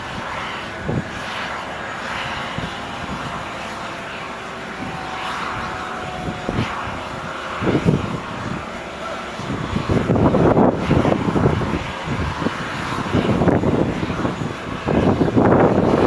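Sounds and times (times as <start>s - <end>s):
faint jet whine: 0.0s - 16.0s
jet engines rushing: 0.0s - 16.0s.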